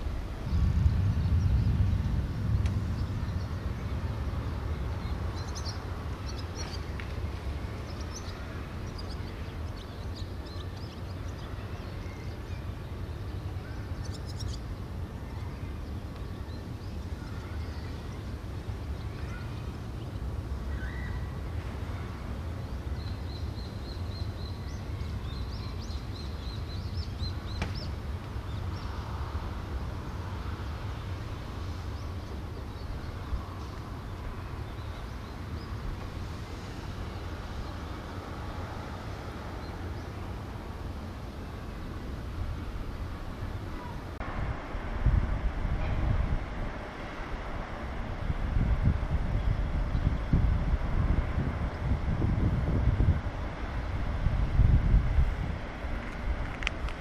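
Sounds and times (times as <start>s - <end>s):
low rumble: 0.0s - 6.2s
small birds chirping: 0.4s - 29.1s.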